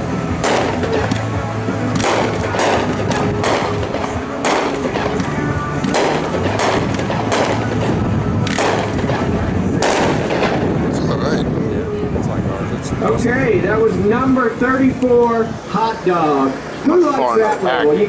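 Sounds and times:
fireworks booms: 0:02.0 - 0:11.0.

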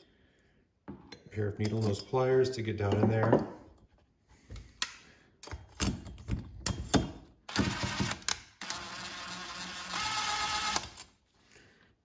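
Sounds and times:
cordless impact driver whirring: 0:07.5 - 0:11.1.

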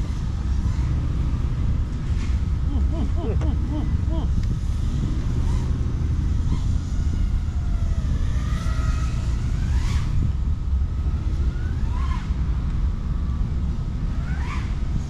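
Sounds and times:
wind rumble on microphone: 0:00.0 - 0:15.0
quadcopter motors whining: 0:06.5 - 0:12.6.

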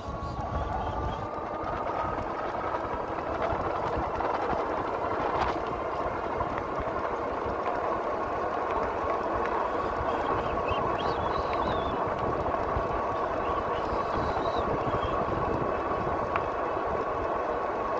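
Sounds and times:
faint high whine: 0:00.0 - 0:04.0, 0:13.1 - 0:15.8
wind buffeting microphone: 0:00.0 - 0:07.7, 0:08.8 - 0:17.9
tyre and wind noise: 0:00.0 - 0:17.9.

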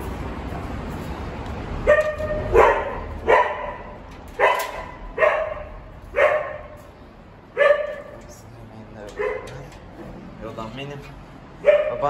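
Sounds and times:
dog barking: 0:01.8 - 0:06.8, 0:07.6 - 0:08.2, 0:09.2 - 0:09.6, 0:11.6 - 0:12.0.

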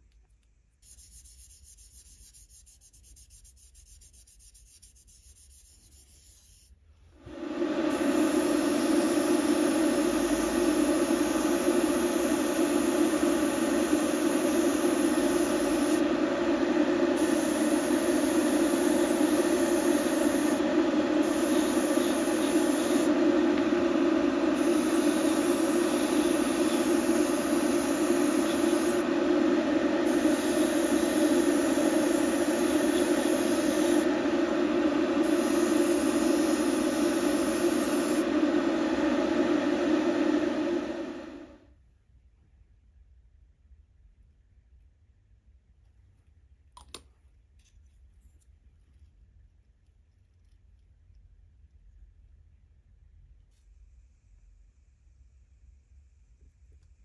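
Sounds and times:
small electric motor running: 0:07.9 - 0:16.0, 0:17.1 - 0:23.6, 0:24.4 - 0:38.3.

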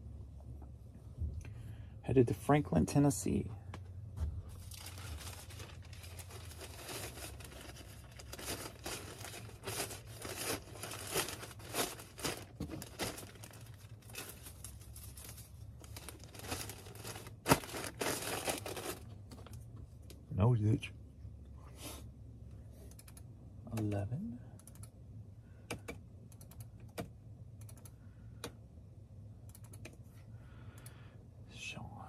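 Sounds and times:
packaging crinkling: 0:04.6 - 0:19.1.

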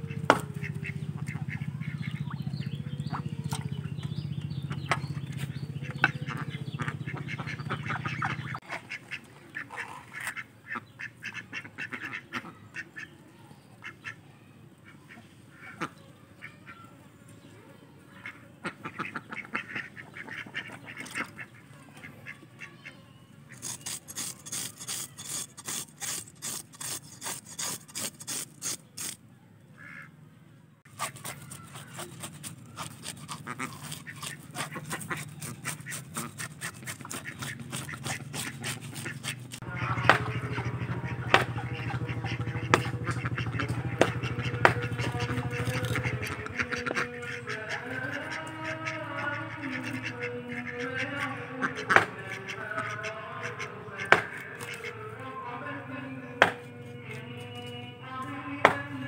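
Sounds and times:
ducks quacking: 0:00.0 - 0:13.2, 0:13.8 - 0:16.9, 0:18.0 - 0:29.2, 0:29.8 - 0:30.2, 0:30.9 - 0:59.0
knife scraping fish scales: 0:23.5 - 0:29.2, 0:30.9 - 0:39.6, 0:45.0 - 0:46.3, 0:54.1 - 0:55.0.

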